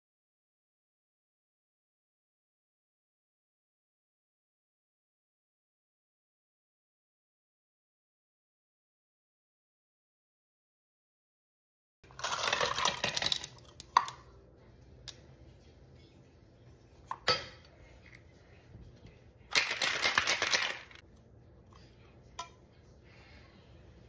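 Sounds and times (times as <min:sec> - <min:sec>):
ice rattling in metal shaker: 0:12.1 - 0:14.2, 0:19.5 - 0:21.0
shaker parts clicking: 0:19.5 - 0:21.0.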